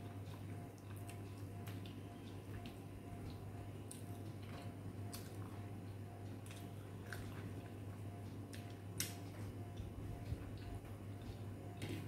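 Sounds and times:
steady low hum: 0:00.0 - 0:12.0
wet chewing smacks: 0:06.3 - 0:07.8.

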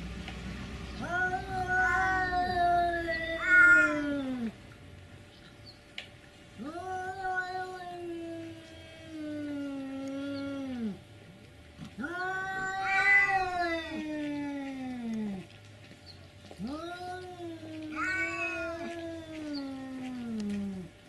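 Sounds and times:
cats yowling: 0:01.0 - 0:04.6, 0:06.6 - 0:11.0, 0:11.8 - 0:15.5, 0:16.6 - 0:21.0.

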